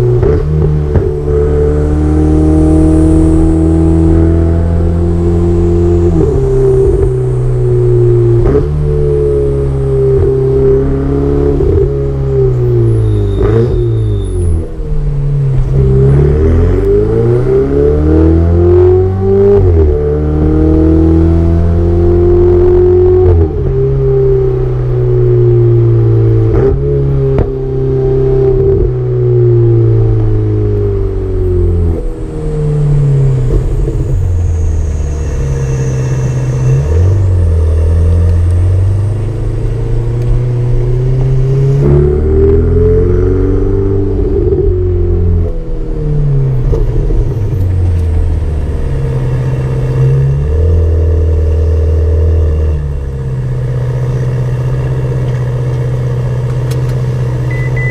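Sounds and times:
car engine accelerating: 0.0s - 57.9s.

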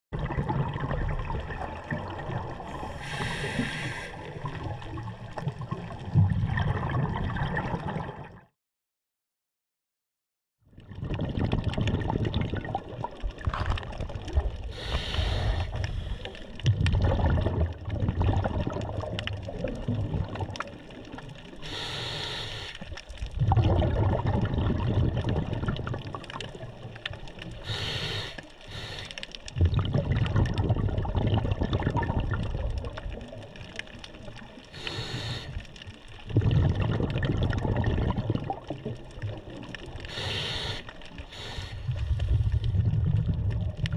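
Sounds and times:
gurgle of exhaled bubbles: 0.2s - 8.5s, 10.7s - 43.9s
regulator inhale hiss: 2.7s - 4.4s, 14.7s - 16.6s, 21.6s - 22.9s, 27.6s - 29.3s, 34.8s - 35.6s, 40.1s - 42.8s.

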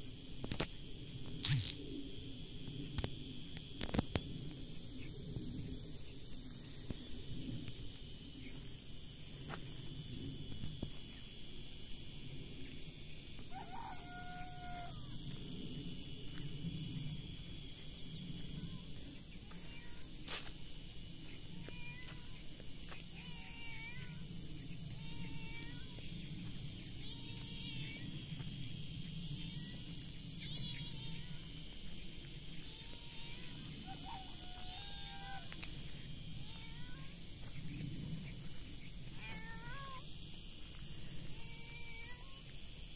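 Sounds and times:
steady high hiss: 0.0s - 42.9s
rooster crowing: 13.5s - 15.3s, 33.8s - 35.6s.

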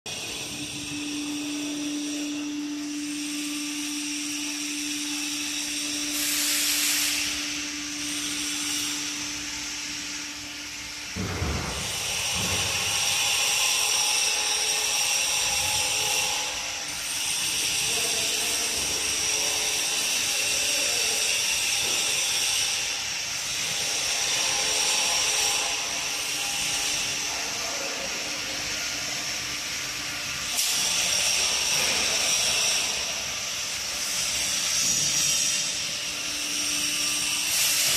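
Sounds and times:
parking lift hissing mechanical noise: 0.1s - 37.9s.

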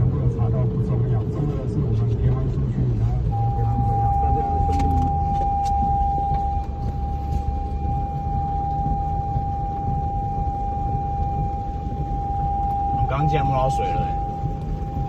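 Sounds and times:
low rumble inside car cabin: 0.0s - 15.0s
steady electronic tone: 3.1s - 15.0s.

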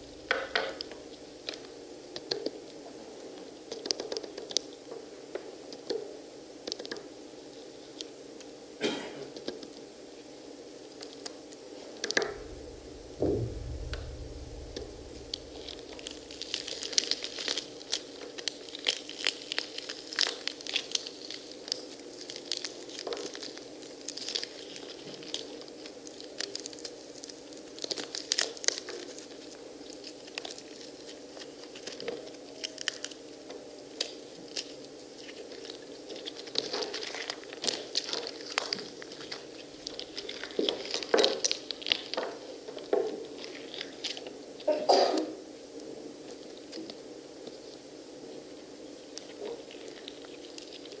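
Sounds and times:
low thud: 0.0s - 1.2s, 12.2s - 17.8s
faint steady hum: 0.0s - 51.0s
hands tearing pomegranate rind: 16.0s - 33.3s, 33.9s - 42.5s.

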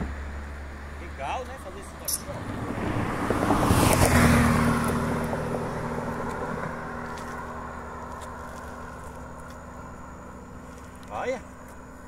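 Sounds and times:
car passing on road: 0.0s - 12.0s.

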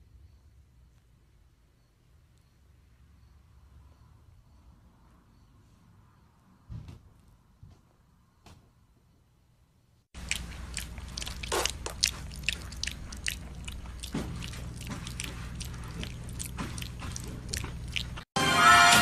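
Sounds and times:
piglet chewing wet food: 10.2s - 18.3s.

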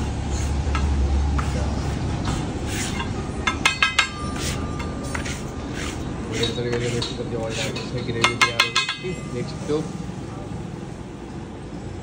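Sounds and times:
metal utensil clinking on pan: 3.0s - 5.0s, 6.4s - 9.4s.

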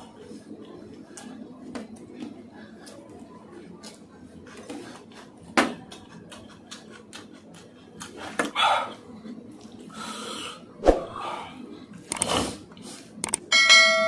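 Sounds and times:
mouth smacking and chewing: 5.9s - 8.2s.

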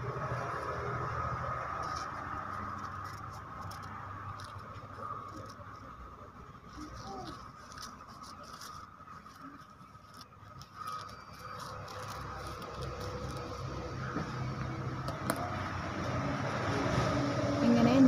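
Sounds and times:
paper rustling: 1.7s - 14.6s.

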